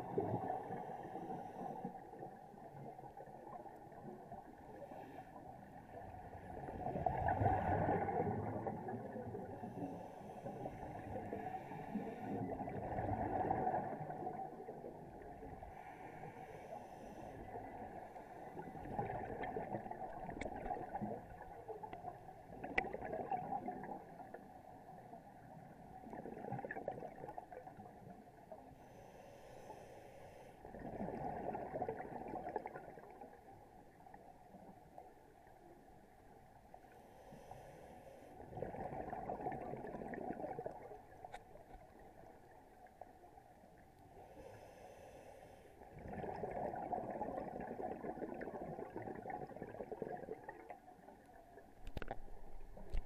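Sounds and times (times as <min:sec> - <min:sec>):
gurgling exhaled bubbles: 0:06.4 - 0:09.8, 0:10.5 - 0:15.5, 0:18.5 - 0:24.3, 0:26.0 - 0:27.9, 0:30.7 - 0:33.3, 0:38.4 - 0:41.0, 0:45.9 - 0:50.8
regulator hiss on inhale: 0:09.6 - 0:12.4, 0:15.6 - 0:18.5, 0:28.7 - 0:30.7, 0:36.9 - 0:38.4, 0:44.2 - 0:45.8.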